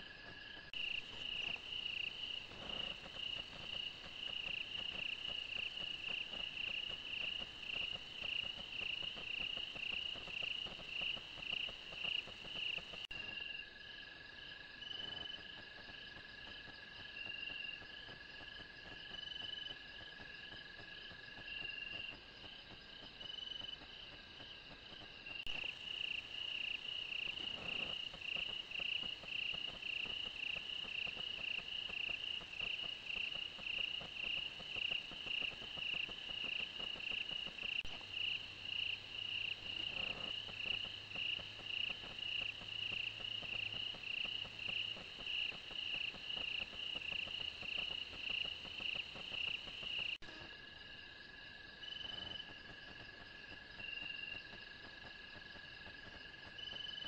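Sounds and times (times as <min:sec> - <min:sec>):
insect pulsing call: 0:00.8 - 0:13.0, 0:25.5 - 0:50.2
insects trilling: 0:00.8 - 0:13.1, 0:25.5 - 0:50.2.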